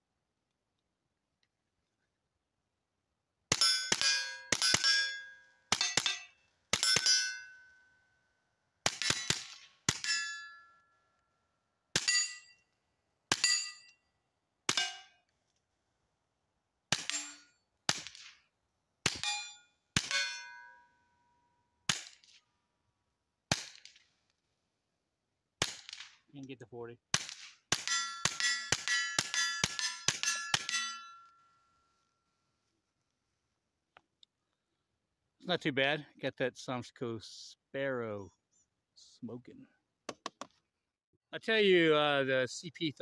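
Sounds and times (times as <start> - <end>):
metallic ring of steel targets: 3.5 - 8.0, 9.0 - 10.9, 12.0 - 12.7, 13.3 - 14.1, 14.7 - 15.2, 17.0 - 18.2, 19.1 - 21.0, 27.7 - 31.7
suppressed pistol shots: 8.8 - 10.1.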